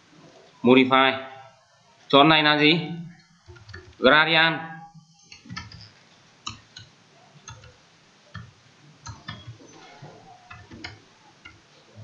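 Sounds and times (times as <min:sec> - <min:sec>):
computer keyboard keys tapping: 0:03.4 - 0:04.0, 0:05.3 - 0:11.6.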